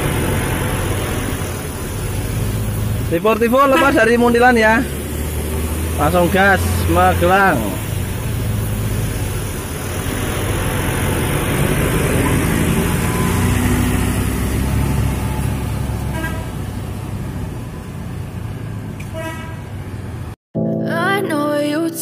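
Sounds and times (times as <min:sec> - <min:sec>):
bus diesel engine: 0:00.0 - 0:20.4
vehicle horn tooting: 0:03.5 - 0:04.6, 0:16.1 - 0:16.6, 0:19.1 - 0:19.8
music: 0:20.6 - 0:22.0.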